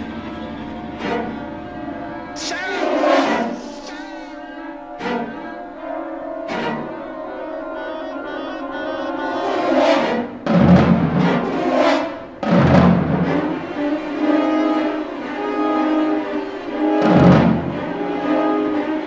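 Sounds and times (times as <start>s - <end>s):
sustained orchestral chords: 0.0s - 19.0s.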